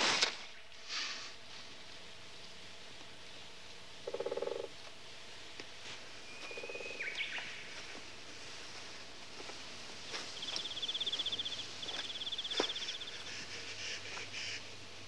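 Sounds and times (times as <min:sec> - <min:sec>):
pulsing croak: 0:04.0 - 0:04.8, 0:06.6 - 0:07.0.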